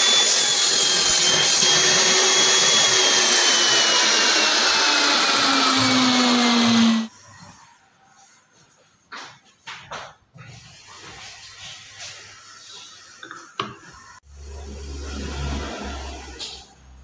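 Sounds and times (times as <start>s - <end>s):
table saw whining: 0.0s - 7.1s.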